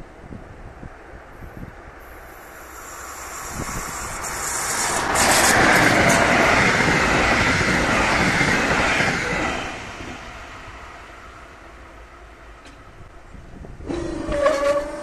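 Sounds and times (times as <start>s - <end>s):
train wheels rumbling on rails: 0.0s - 15.0s
sharp clicks of train wheels: 2.2s - 10.2s, 12.6s - 12.9s.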